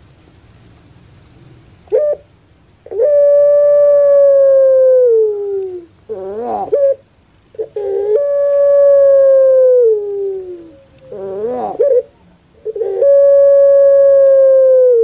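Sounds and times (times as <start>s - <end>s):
dove cooing: 1.9s - 15.0s.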